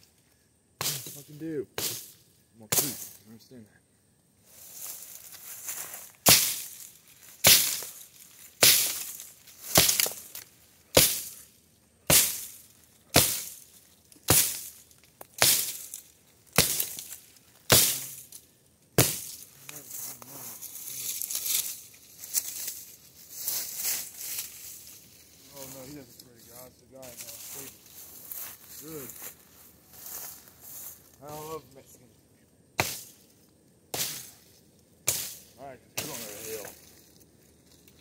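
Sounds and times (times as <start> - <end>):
axe chopping wood: 9.7 - 10.2, 11.0 - 11.3, 12.1 - 12.5, 13.1 - 13.6, 14.3 - 14.7, 15.4 - 15.8, 16.6 - 17.0, 17.7 - 18.1, 19.0 - 19.4, 32.8 - 33.1.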